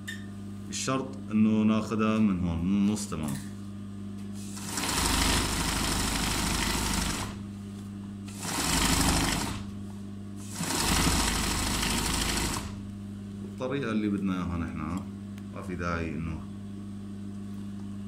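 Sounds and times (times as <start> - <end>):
steady low hum: 0.0 - 18.0
sewing machine needle running fast: 4.5 - 7.4, 8.3 - 9.7, 10.4 - 12.8.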